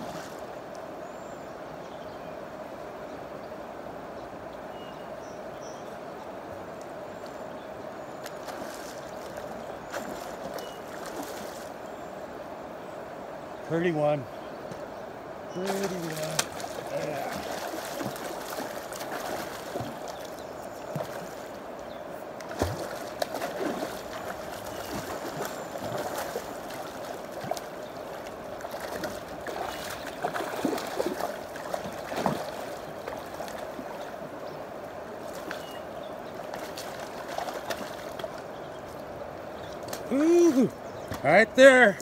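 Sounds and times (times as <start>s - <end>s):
river water rushing over rocks: 15.2s - 40.8s
water gurgles and splashes: 15.6s - 21.7s, 22.4s - 34.4s, 35.2s - 38.5s.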